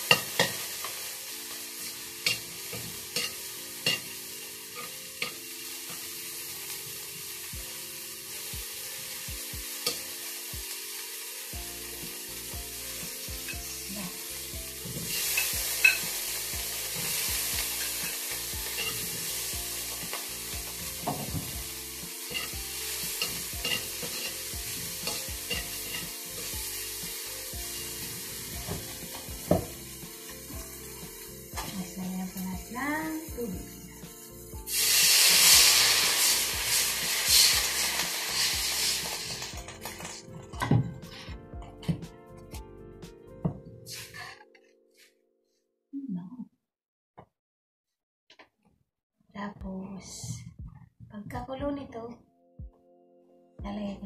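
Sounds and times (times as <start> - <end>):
food sizzling in oil: 0.0 - 41.2, 43.9 - 44.3
metal spatula scraping a wok: 1.8 - 6.1, 15.0 - 16.2, 16.9 - 19.5, 22.2 - 26.5, 34.7 - 41.3.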